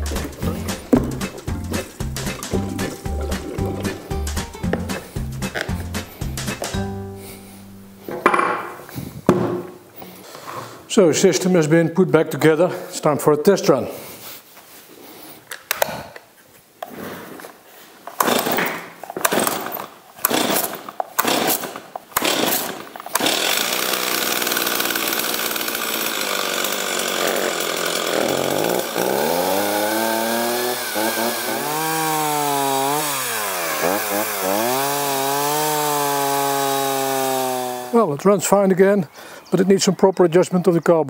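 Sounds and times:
chainsaw engine running: 0.0 - 6.8, 18.2 - 38.0
starter cord tugs: 18.1 - 37.9.

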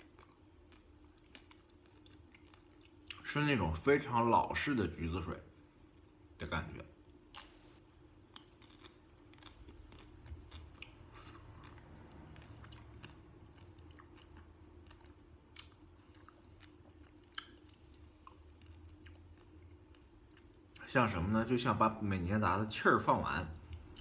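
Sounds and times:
chewing ice cream bar: 0.0 - 3.3, 7.0 - 20.8
low steady hum: 0.0 - 24.0.

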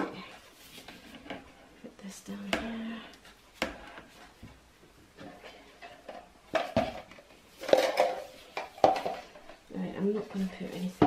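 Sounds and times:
utensils clattering on worktop: 7.6 - 9.3.

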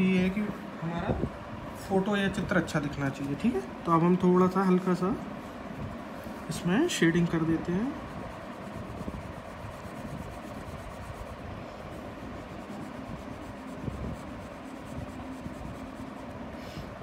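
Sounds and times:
steady background hiss: 0.0 - 17.0
pencil scratching on paper: 7.2 - 16.5.

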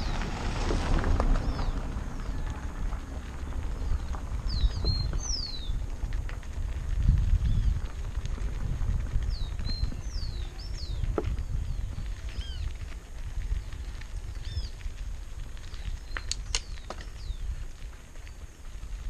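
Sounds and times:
birds chirping: 0.0 - 0.3, 1.3 - 5.9, 9.2 - 18.7
tyres crunching over gravel: 0.0 - 19.0
wind noise on microphone: 0.0 - 19.0.

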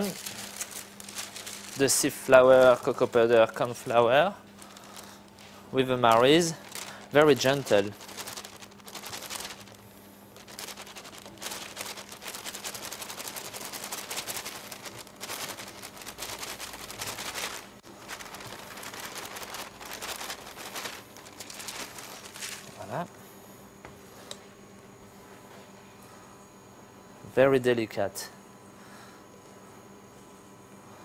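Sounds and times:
paper rustling: 0.0 - 9.8, 10.4 - 23.0
steady low hum: 0.0 - 31.0.

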